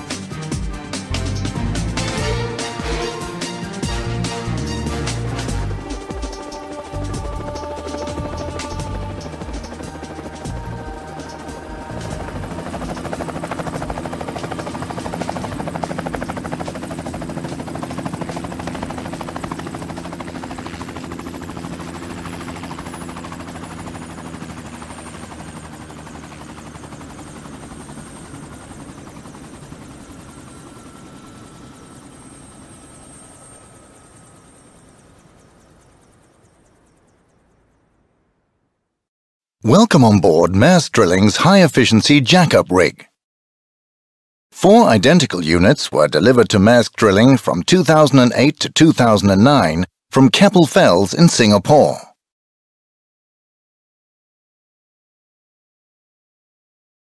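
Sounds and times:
helicopter rotor chop: 0:00.0 - 0:36.6, 0:44.6 - 0:49.8
high turbine whine: 0:00.0 - 0:37.0.

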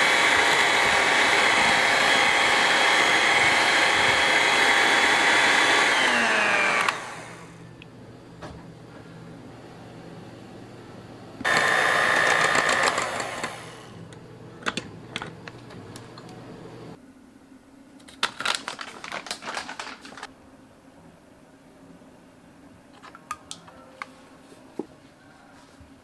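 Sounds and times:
electric hand mixer hum: 0:00.0 - 0:07.6, 0:11.4 - 0:14.2
mixer beaters rattling: 0:11.4 - 0:13.9.

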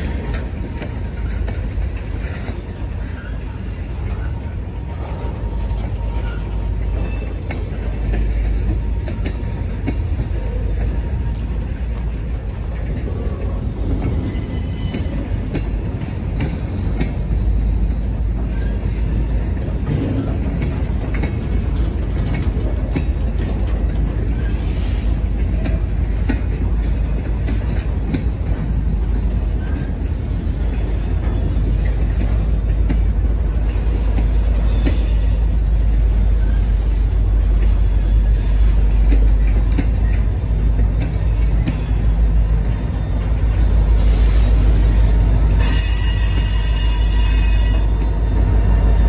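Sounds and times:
train clicks and clanks: 0:00.0 - 0:49.0
train wheels rumbling on rail: 0:00.0 - 0:49.0
high wheel squeal: 0:43.6 - 0:49.0.

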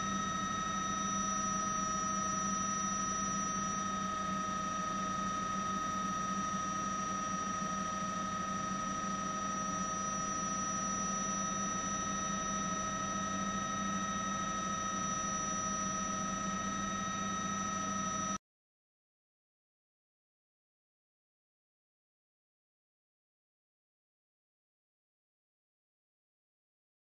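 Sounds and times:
helicopter turbine whine: 0:00.0 - 0:18.4.

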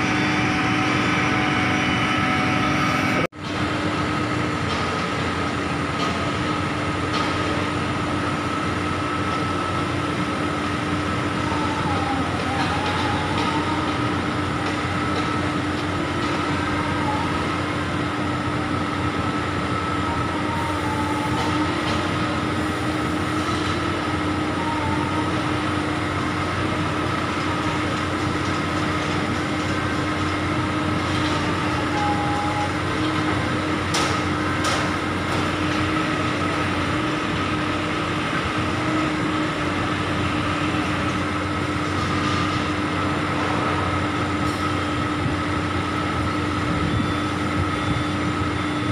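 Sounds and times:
construction machinery diesel engines: 0:00.0 - 0:48.9.

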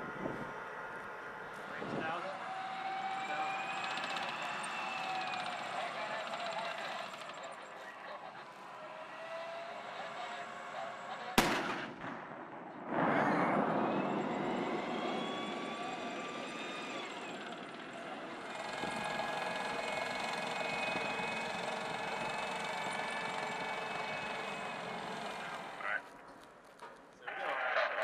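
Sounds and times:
tank turbine engine whine: 0:00.0 - 0:26.6
rumble of tank tracks: 0:00.0 - 0:28.0
gunshot: 0:11.4 - 0:15.0.

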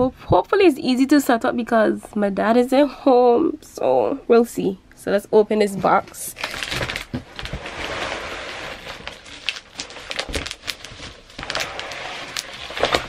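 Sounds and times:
plastic wrap and cardboard rustling: 0:05.8 - 0:13.0
small clicks and cracks: 0:09.0 - 0:13.0.

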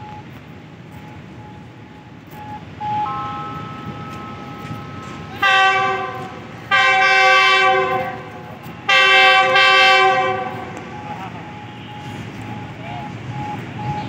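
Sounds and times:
locomotive air horn blasts: 0:02.4 - 0:13.2.

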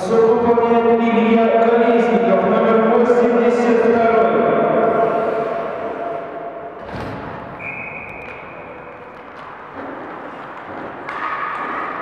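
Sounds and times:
arena hall background noise: 0:00.0 - 0:12.0
referee's whistle blast: 0:07.6 - 0:08.8.

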